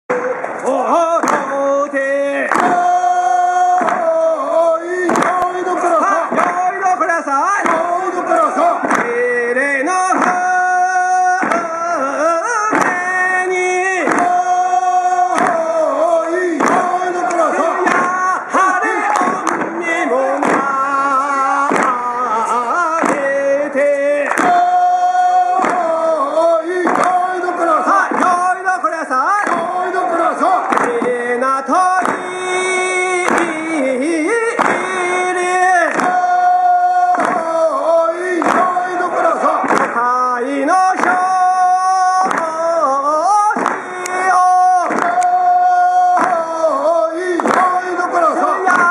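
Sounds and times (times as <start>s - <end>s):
voices singing folk song: 0.1s - 48.9s
sharp wooden knock: 1.2s - 1.6s, 2.5s - 2.9s, 5.1s - 5.5s, 7.6s - 9.2s, 11.4s - 11.8s, 12.7s - 13.1s, 16.6s - 18.2s, 19.0s - 20.8s, 21.7s - 22.0s, 23.0s - 23.4s, 25.6s - 25.8s, 27.9s - 28.5s, 34.5s - 35.1s, 37.1s - 37.5s, 43.5s - 45.3s
regular percussive strikes: 26.8s - 48.9s.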